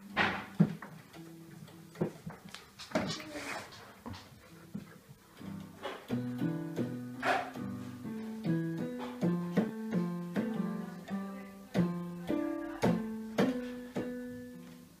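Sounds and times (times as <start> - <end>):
electronic keyboard notes: 5.4 - 15.0.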